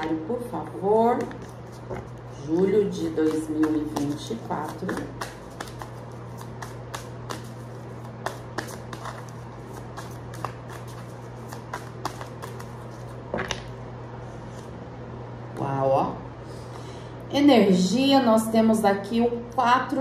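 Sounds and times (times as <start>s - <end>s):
cards being shuffled: 1.2s - 13.7s.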